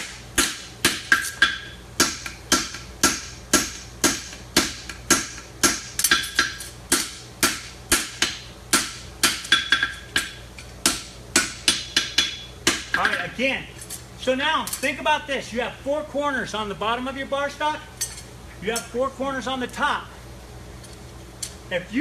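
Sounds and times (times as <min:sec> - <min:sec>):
hammer striking metal on anvil: 0:00.0 - 0:13.3.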